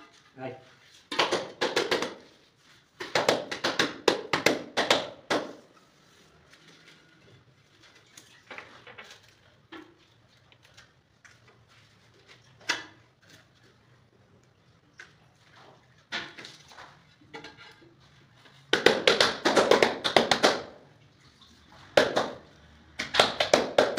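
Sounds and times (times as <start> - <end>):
hand slapping wall tile: 1.1 - 2.4, 3.0 - 5.7, 18.7 - 20.8, 23.0 - 23.9.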